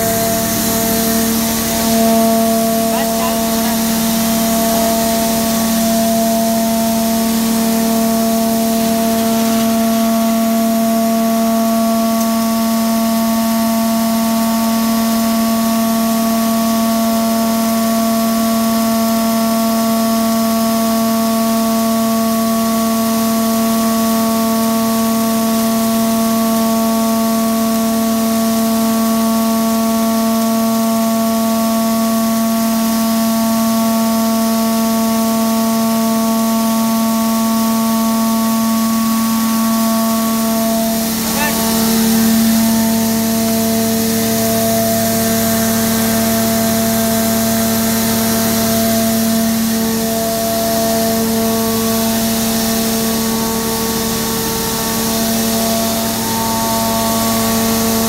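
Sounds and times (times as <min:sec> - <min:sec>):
crusher machine humming: 0:00.0 - 0:13.8, 0:40.6 - 0:45.6, 0:49.2 - 0:58.0
whine: 0:00.0 - 0:14.4, 0:39.4 - 0:46.8, 0:47.5 - 0:58.0.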